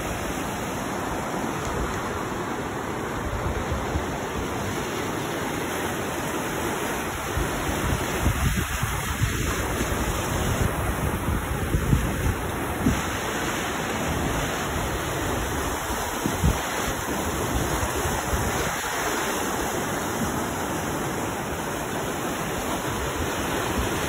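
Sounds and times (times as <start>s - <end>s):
river rushing through canyon: 0.0s - 24.0s
wind buffeting microphone: 7.1s - 13.2s, 14.1s - 19.0s.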